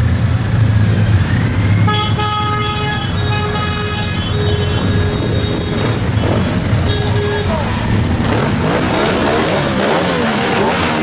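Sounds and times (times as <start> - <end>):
horns honking: 1.6 - 11.0
motorcycles rumbling past: 7.6 - 11.0.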